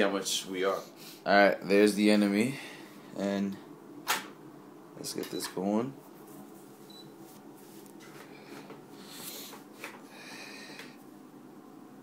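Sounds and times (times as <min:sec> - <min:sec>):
faint rustling and handling: 0:05.0 - 0:11.3.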